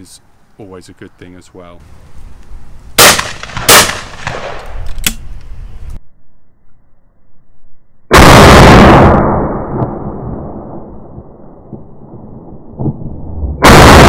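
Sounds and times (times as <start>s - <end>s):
shotgun shots: 3.0s - 4.8s, 8.1s - 9.5s, 13.6s - 14.0s
slowed-down shotgun boom: 8.1s - 14.0s.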